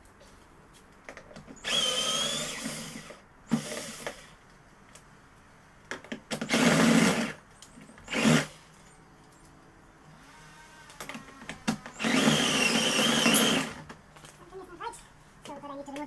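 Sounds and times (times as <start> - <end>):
power drill-driver whine: 1.6 - 4.3, 6.4 - 8.7, 10.2 - 13.8.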